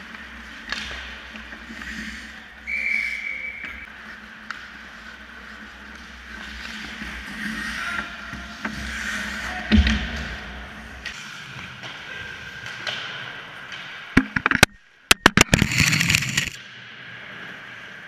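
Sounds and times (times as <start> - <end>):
ice skates on rink: 0.0 - 14.2, 15.4 - 18.0
sharp knocks and clatter: 14.2 - 16.6
scraping on ice: 15.4 - 16.6.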